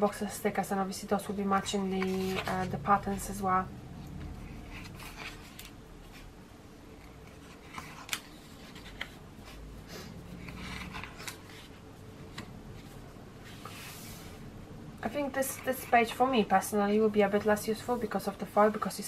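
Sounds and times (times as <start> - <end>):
book pages turning: 1.4 - 3.1, 4.1 - 6.3, 6.9 - 9.7, 10.3 - 14.2.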